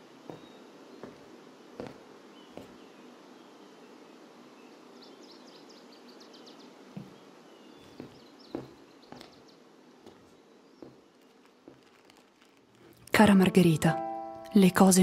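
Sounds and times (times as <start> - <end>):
small birds chirping: 0.0 - 13.1
soft thumps: 0.3 - 2.0, 2.6 - 2.8, 6.9 - 7.2, 7.8 - 9.4.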